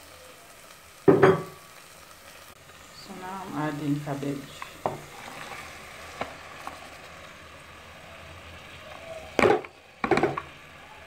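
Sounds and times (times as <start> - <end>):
bowl knocking on pot: 1.1 - 1.5.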